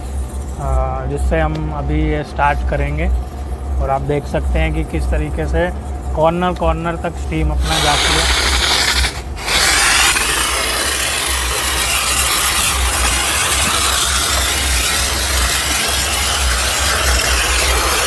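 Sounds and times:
steam jet hissing: 7.6s - 18.0s.

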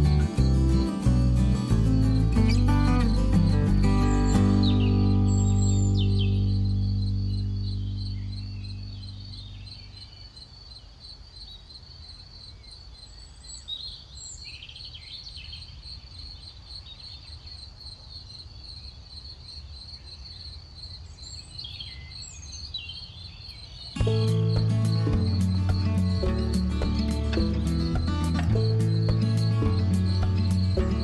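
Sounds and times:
crickets chirping: 0.0s - 31.0s
loud music: 24.0s - 31.0s.

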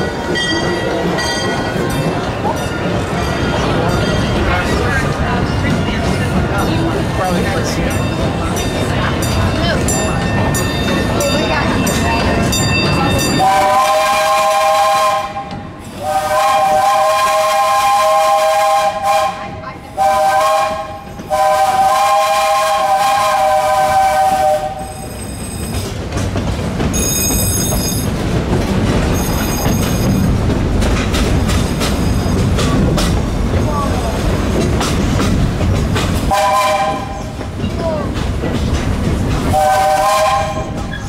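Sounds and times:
train wheels on track: 0.0s - 41.0s
steam locomotive whistle blasts: 13.4s - 25.2s, 36.3s - 37.3s, 39.5s - 40.8s.

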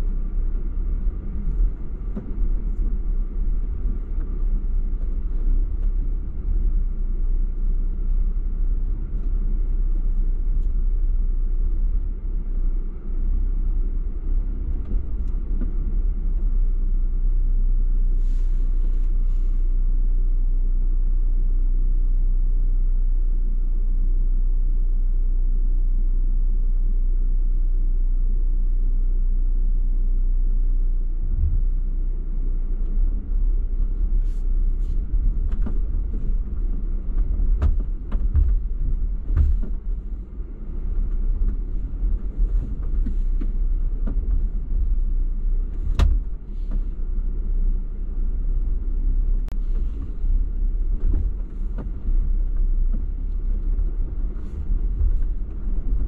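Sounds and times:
knocks and clunks over rough ground: 0.0s - 17.2s, 31.3s - 56.0s
vehicle engine rumble: 0.0s - 56.0s.

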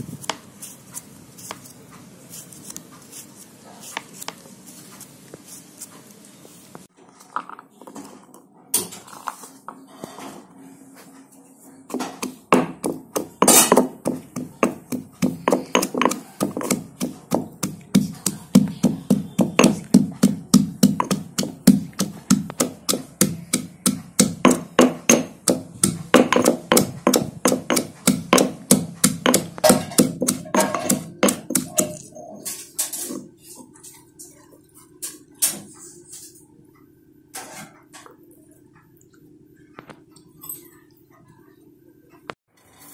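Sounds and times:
stone pestle pounding in mortar: 11.9s - 32.1s.

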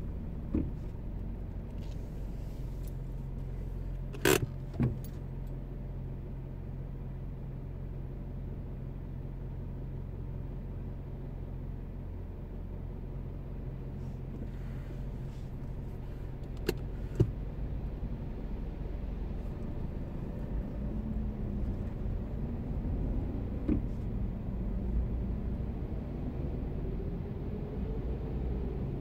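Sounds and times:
car engine and road rumble: 0.0s - 29.0s.

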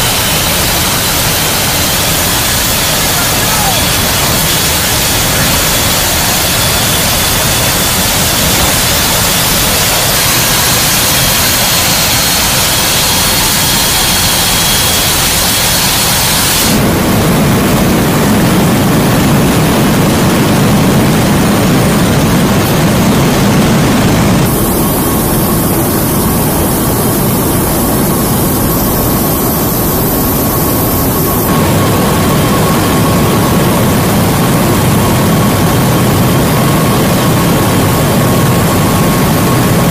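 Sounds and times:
jet engine noise: 0.0s - 39.9s.

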